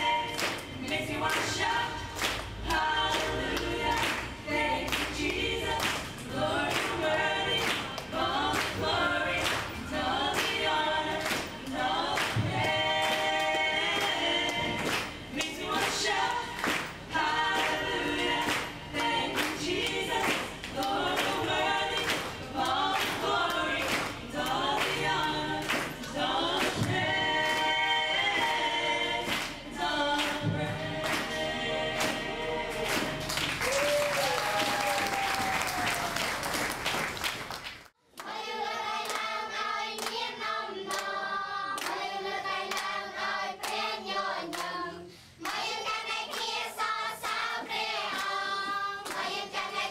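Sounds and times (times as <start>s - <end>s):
children singing together: 0.0s - 33.4s, 38.2s - 49.9s
group singing worship song: 0.0s - 33.9s, 38.2s - 49.9s
hand claps: 0.3s - 27.7s, 29.3s - 29.6s, 30.2s - 31.4s, 32.8s - 38.3s.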